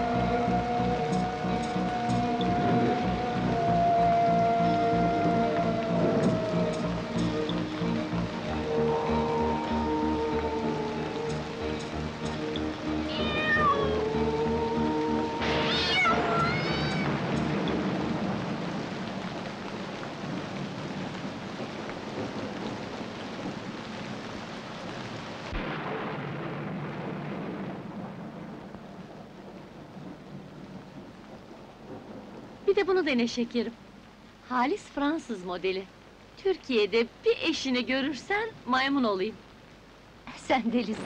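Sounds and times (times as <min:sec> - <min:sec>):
background music: 0:00.0 - 0:19.4
rumbling thunder: 0:00.0 - 0:33.8
steady rain: 0:00.0 - 0:41.0
cat meowing: 0:12.9 - 0:17.2.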